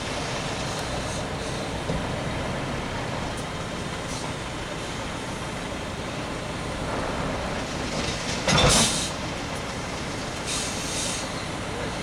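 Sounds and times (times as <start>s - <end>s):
truck diesel engine running: 0.0s - 12.0s
loud air hiss: 8.7s - 9.2s, 10.4s - 11.5s.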